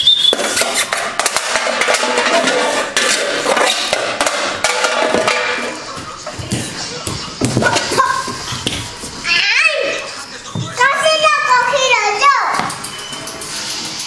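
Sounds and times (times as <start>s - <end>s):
metal can clattering on tile floor: 0.3s - 5.8s.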